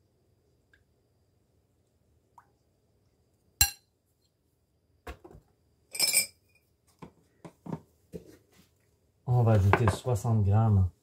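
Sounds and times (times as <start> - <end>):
ceramic bowl and spatula clinking: 3.6 - 3.8.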